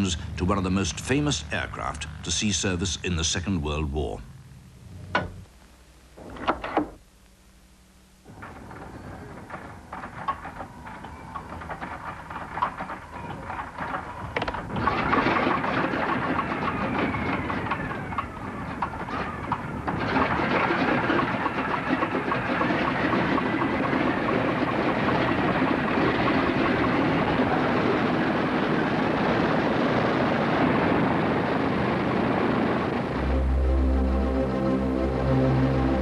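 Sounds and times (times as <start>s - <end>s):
propeller aircraft engine: 8.3s - 36.0s.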